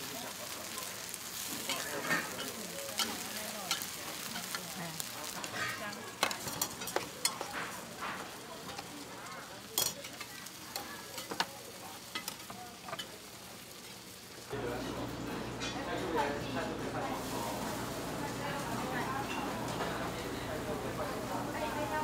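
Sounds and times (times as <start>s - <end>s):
cakes sizzling on griddle: 0.0s - 22.0s
metal spoon scraping griddle: 1.4s - 8.9s.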